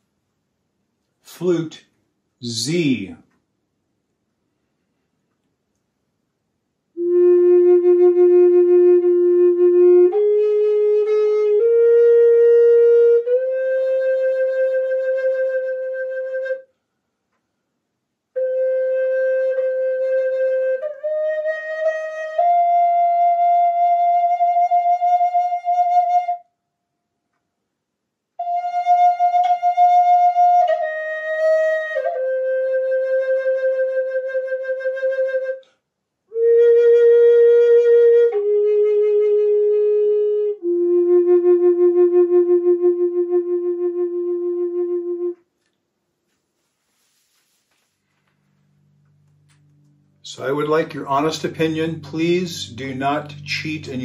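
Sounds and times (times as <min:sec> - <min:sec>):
flute slow melody: 0:07.0 - 0:16.7, 0:18.4 - 0:26.6, 0:28.4 - 0:45.5, 0:48.9 - 0:54.0.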